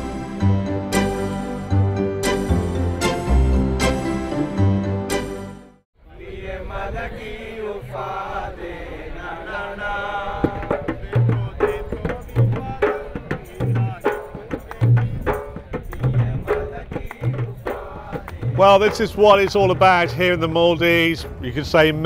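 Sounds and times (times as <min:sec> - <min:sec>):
chant-like voice over instruments: 0:06.0 - 0:22.0
deep beat: 0:10.5 - 0:22.0.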